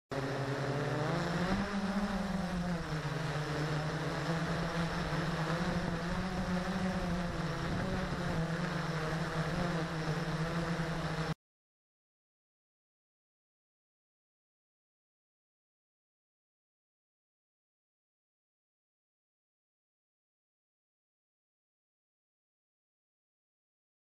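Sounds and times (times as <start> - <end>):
quadcopter propellers buzzing: 0.1 - 11.4.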